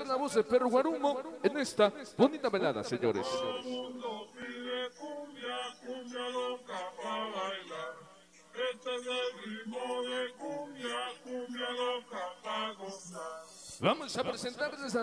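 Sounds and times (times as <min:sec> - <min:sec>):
man chanting in sing-song: 0:00.0 - 0:08.0.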